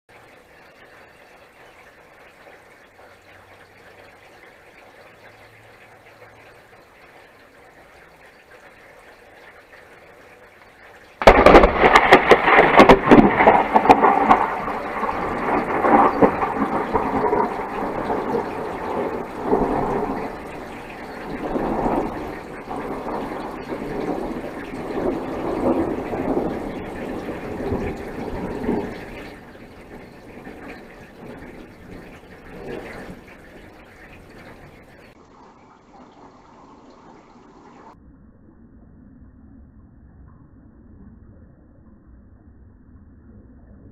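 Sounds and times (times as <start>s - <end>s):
light rain hissing: 0.1s - 38.0s
thunder crack and rumble: 11.2s - 35.2s.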